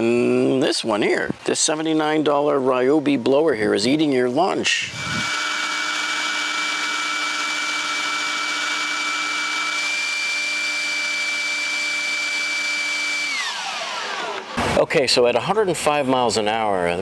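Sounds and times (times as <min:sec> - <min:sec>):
leaf blower rushing air: 0:04.8 - 0:14.8.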